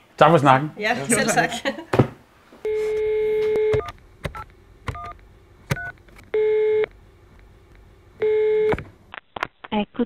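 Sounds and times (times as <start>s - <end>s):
keypad beeps: 2.7s - 6.9s
telephone dial tone: 2.7s - 7.0s, 8.2s - 8.8s.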